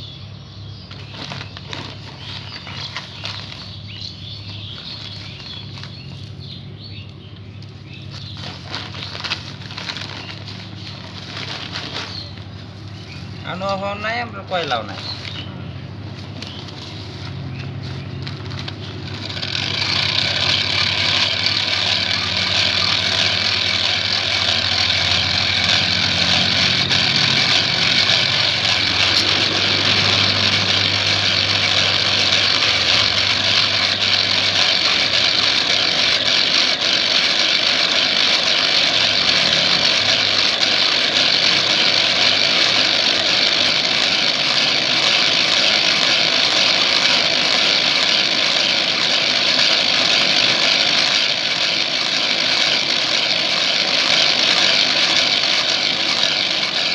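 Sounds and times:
hand-cranked blower whirring: 0.9s - 6.6s, 8.0s - 15.6s, 16.2s - 56.9s
low hum: 15.0s - 56.9s.

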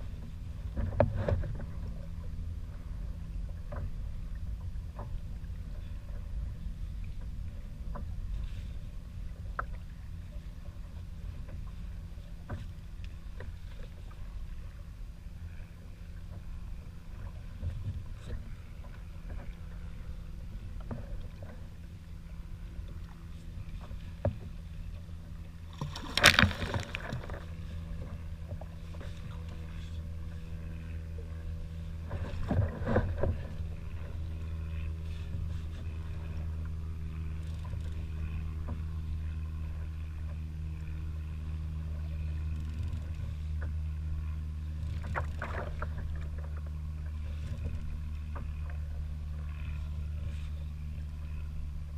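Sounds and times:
water lapping against kayak hull: 0.0s - 51.9s
water splashing: 25.6s - 27.6s.

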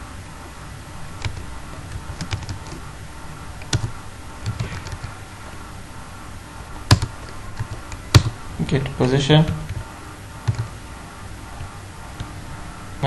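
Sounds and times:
steady low hum: 0.0s - 13.0s
keyboard typing clicks: 1.2s - 2.8s, 3.6s - 5.1s, 6.9s - 8.4s, 9.0s - 10.7s.

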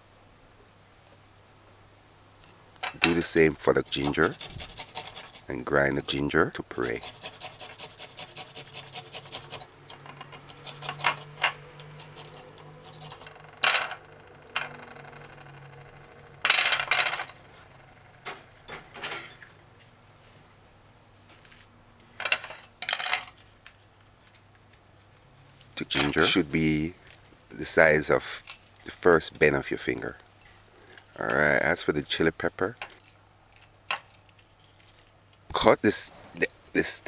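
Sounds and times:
ginger grated on metal grater: 3.1s - 15.9s.

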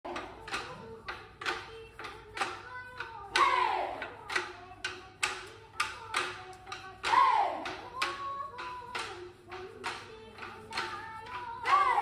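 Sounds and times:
steady drumbeat: 3.3s - 4.4s, 6.7s - 12.0s.

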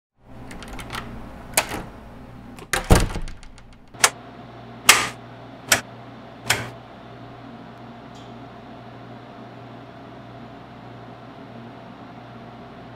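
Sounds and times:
steady low hum: 0.2s - 12.9s
light switches clicking: 4.9s - 5.8s.

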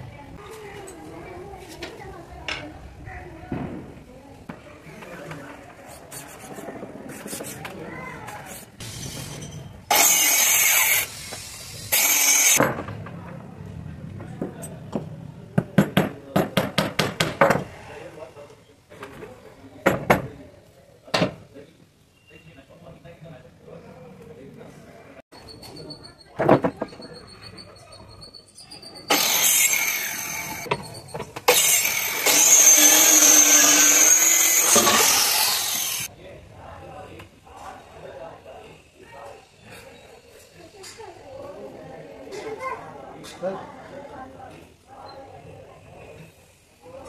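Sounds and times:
circular saw cutting plywood: 8.6s - 12.6s, 29.1s - 36.1s
electric woodworking tool on wood: 9.9s - 12.6s, 29.1s - 30.7s, 31.5s - 36.1s
hammer striking nails into wood: 15.7s - 17.6s.

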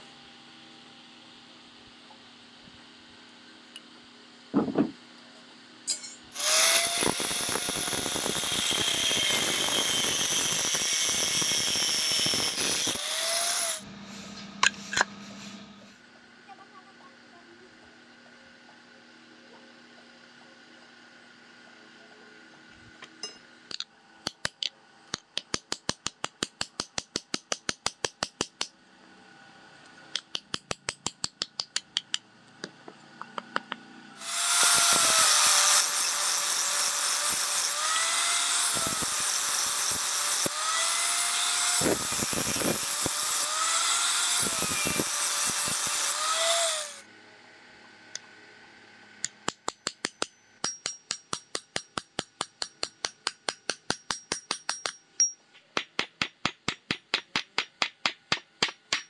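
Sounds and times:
angle grinder sanding wood: 6.4s - 13.9s, 34.2s - 47.0s
hammer tapping nails: 30.2s - 32.2s, 49.2s - 59.0s.

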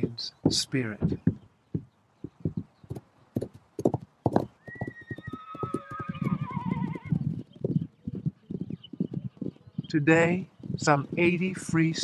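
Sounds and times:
horse hooves galloping: 0.0s - 12.0s
horse whinnying: 4.6s - 7.3s.

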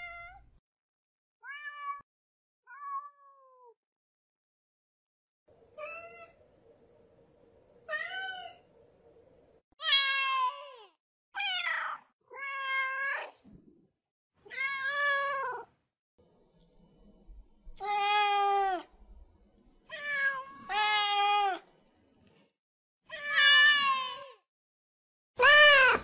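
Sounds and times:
cat meowing: 1.4s - 2.0s, 11.4s - 13.3s, 14.4s - 15.7s, 17.7s - 18.9s.

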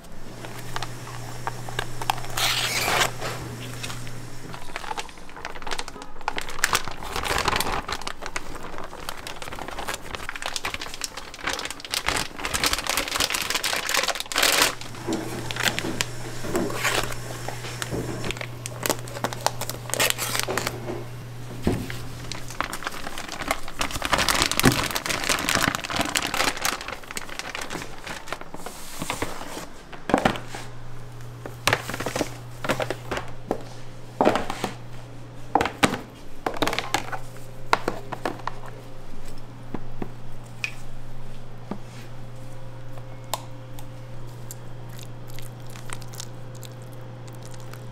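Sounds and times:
plastic bags crinkling: 0.0s - 39.4s, 43.8s - 47.9s
low steady hum: 0.0s - 47.9s
scissors snipping plastic: 10.9s - 20.8s.

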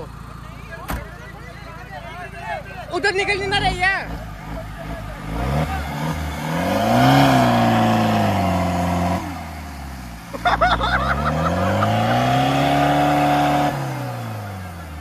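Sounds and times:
engine revving hard: 3.4s - 15.0s.

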